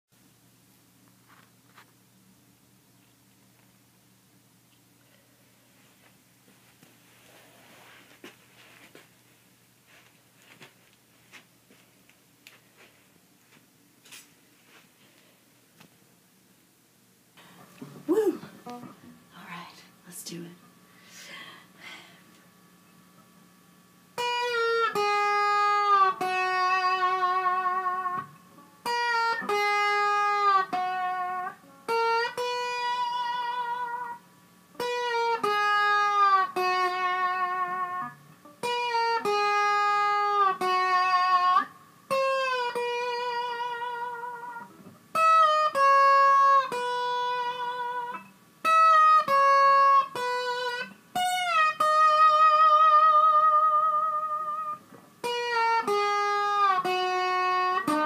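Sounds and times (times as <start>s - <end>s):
slide electric guitar melody: 24.1s - 58.0s.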